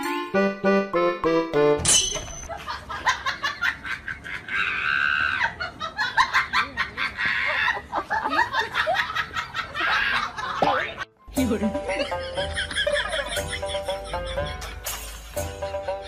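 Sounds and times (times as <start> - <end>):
people laughing loudly: 2.5 - 11.0, 11.6 - 15.0.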